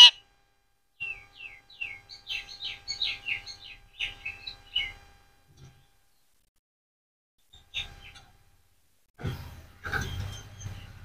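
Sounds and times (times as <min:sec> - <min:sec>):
sharp loud parakeet call: 0:00.0 - 0:00.2.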